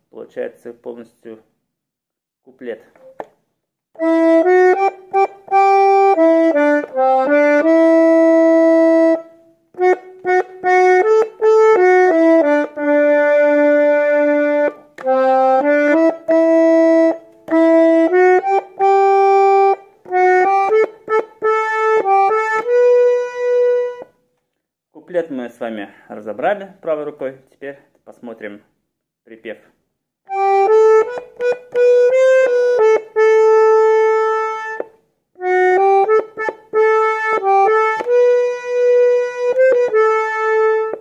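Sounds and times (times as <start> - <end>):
button accordion melody: 4.0 - 24.2, 30.3 - 41.0.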